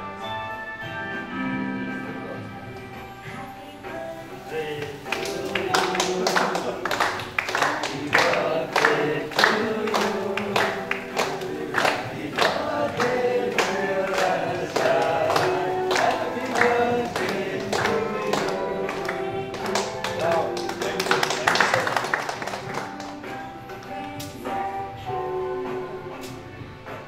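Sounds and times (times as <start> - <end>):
group singing: 3.9 - 21.1
rhythmic hand clapping: 4.5 - 24.6.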